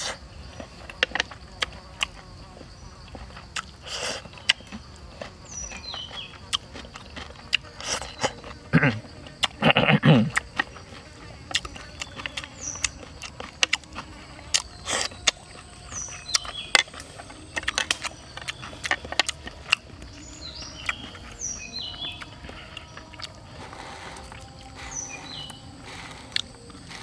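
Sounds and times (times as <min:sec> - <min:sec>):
chewing: 0:00.0 - 0:27.0
faint insect buzz: 0:00.0 - 0:27.0
person humming: 0:20.1 - 0:27.0.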